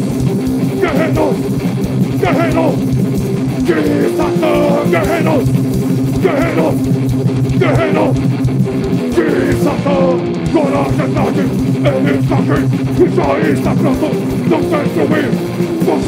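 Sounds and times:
distorted electric guitar: 0.0 - 16.0
drums: 0.0 - 16.0
person singing: 0.7 - 1.5, 2.2 - 2.9, 3.6 - 6.9, 7.5 - 8.2, 9.0 - 16.0.

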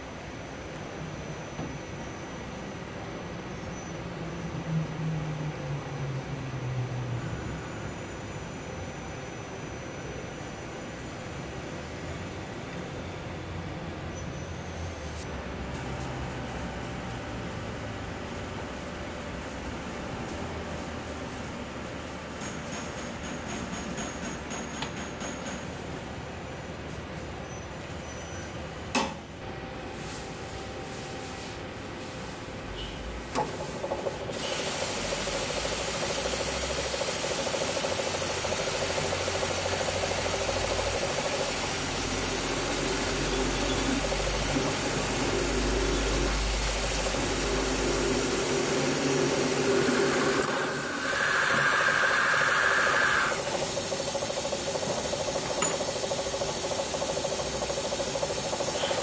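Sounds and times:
drill press machining metal: 34.4 - 59.0.

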